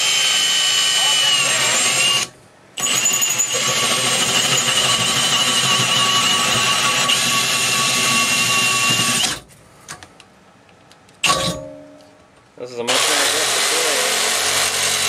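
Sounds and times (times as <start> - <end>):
cordless drill whining and grinding: 0.0 - 9.4, 12.9 - 15.0.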